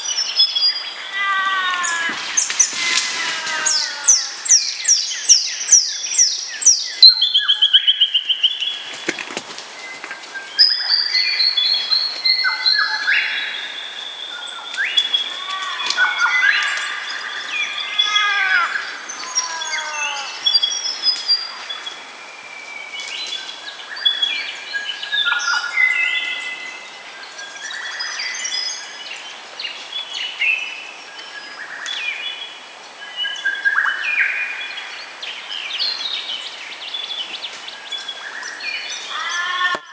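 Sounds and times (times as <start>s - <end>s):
birds singing: 0.0s - 39.9s.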